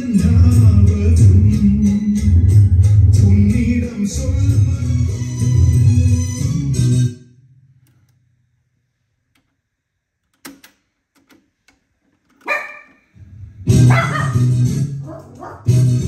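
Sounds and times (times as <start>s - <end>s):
music from cassette deck: 13.4s - 16.0s.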